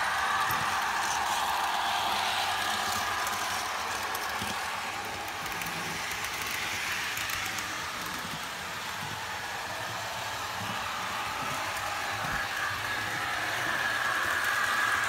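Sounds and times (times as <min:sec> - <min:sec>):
model train diesel engine sound: 0:00.0 - 0:15.0
model train running on track: 0:00.0 - 0:15.0.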